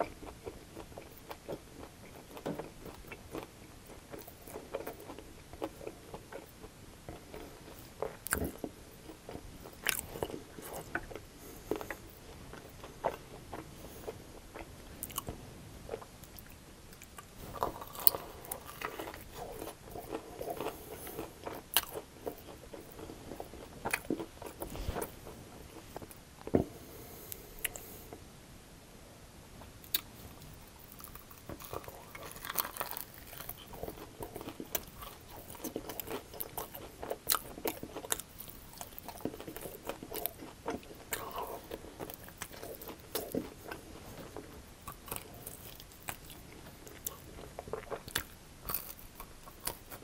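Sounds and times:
wet chewing: 0:15.9 - 0:26.2, 0:29.9 - 0:50.0
crunching of crispy chicken wings: 0:29.9 - 0:50.0.

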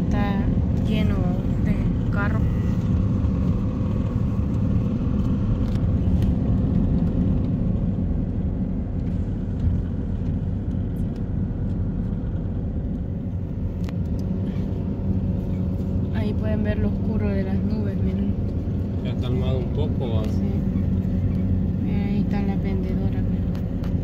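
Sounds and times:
car engine rumble: 0:00.0 - 0:24.0
road noise on wet street: 0:00.0 - 0:24.0.

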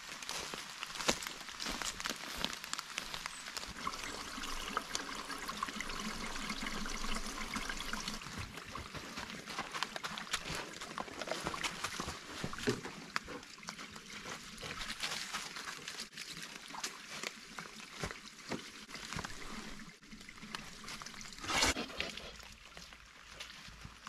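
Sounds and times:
footsteps crunching dry leaves: 0:00.0 - 0:04.1.

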